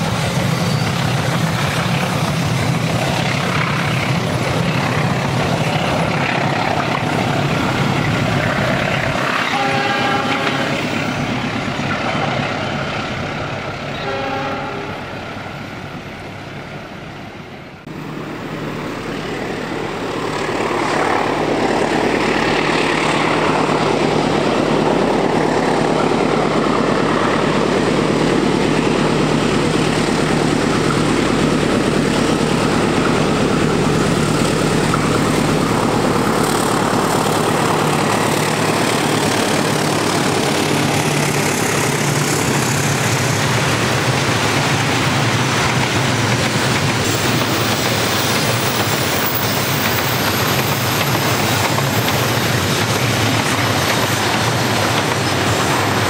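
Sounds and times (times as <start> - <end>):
diesel locomotive rumble: 0.0 - 56.0
passenger train running: 0.0 - 56.0
train horn blasts: 9.5 - 10.9, 13.9 - 15.0.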